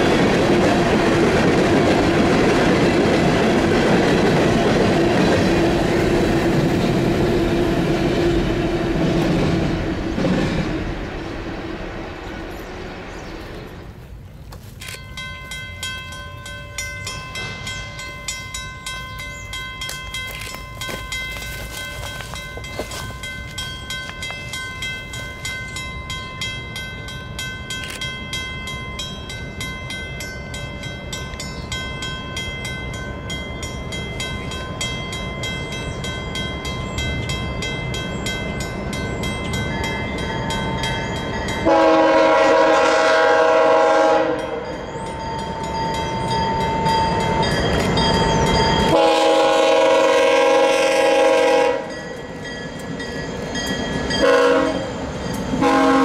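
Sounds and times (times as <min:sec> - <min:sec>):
train low rumble: 0:00.0 - 0:56.0
locomotive horn blast: 0:41.6 - 0:44.6, 0:48.9 - 0:52.0, 0:54.2 - 0:55.0, 0:55.6 - 0:56.0.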